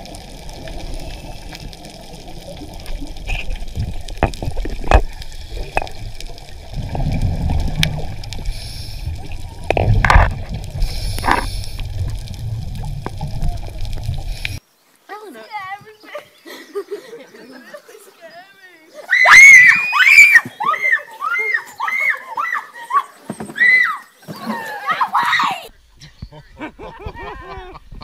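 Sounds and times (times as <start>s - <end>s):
low rumble: 0.0s - 14.6s
underwater bubbling: 0.0s - 14.6s.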